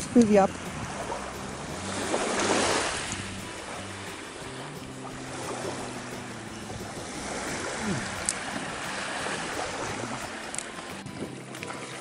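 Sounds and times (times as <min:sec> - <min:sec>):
small waves washing onto beach: 0:00.0 - 0:12.0
wind: 0:00.0 - 0:12.0.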